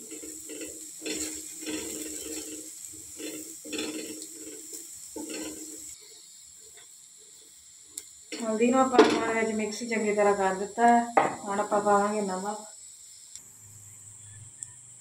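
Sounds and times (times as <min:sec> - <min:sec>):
spatula scraping frying pan: 0:00.0 - 0:06.0
light sizzling: 0:00.0 - 0:15.0.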